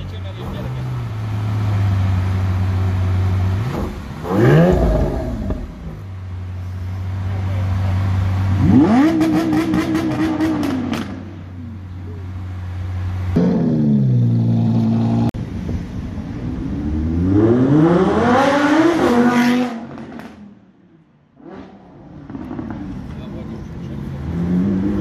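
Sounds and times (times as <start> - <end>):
car engine idling and revving: 0.0 - 25.0
car engine accelerating hard: 0.3 - 6.0, 7.3 - 11.3.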